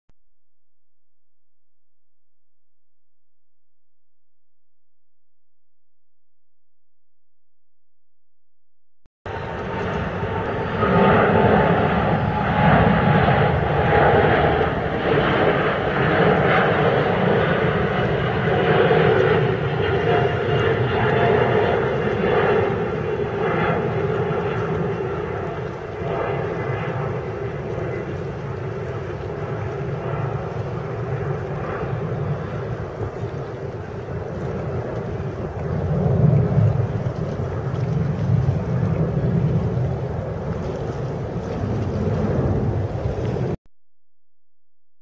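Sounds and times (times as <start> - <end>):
jet engine rumble with whine: 9.3 - 43.6.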